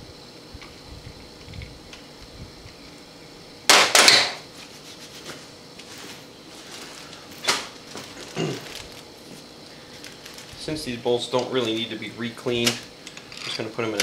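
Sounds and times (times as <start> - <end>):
metal tools clattering on workbench: 13.2 - 14.0.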